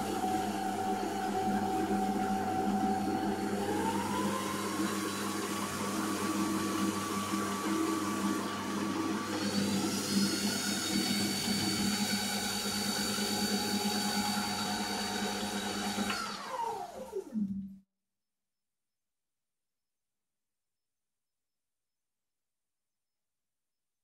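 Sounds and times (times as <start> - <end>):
metal lathe motor whine: 0.0 - 17.5.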